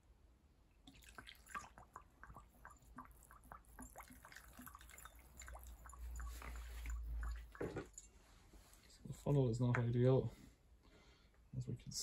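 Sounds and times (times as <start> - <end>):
petrol dripping into funnel: 0.8 - 8.1.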